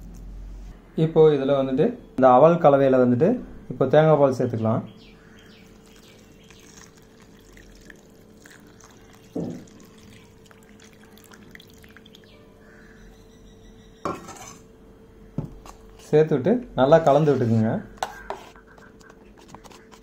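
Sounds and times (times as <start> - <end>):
faint steady hum: 0.0 - 20.0
liquid pouring into metal bowl: 5.4 - 12.4.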